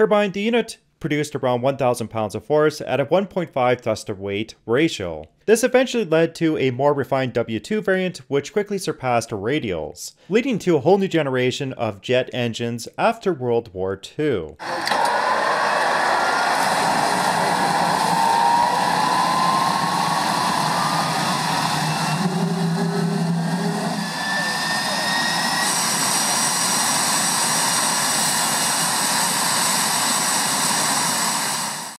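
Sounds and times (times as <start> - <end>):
jet engine running: 14.6 - 32.0
turbine whine: 14.6 - 32.0.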